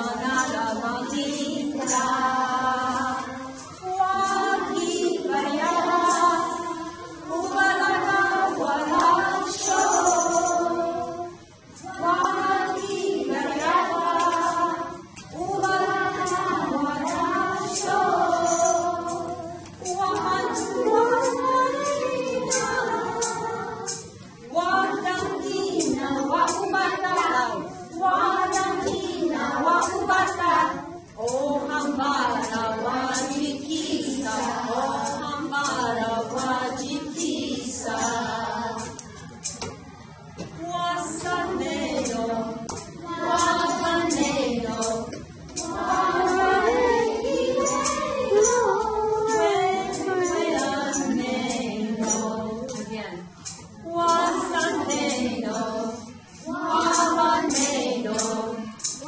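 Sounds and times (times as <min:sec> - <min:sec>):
children and woman singing: 0:00.0 - 0:59.0.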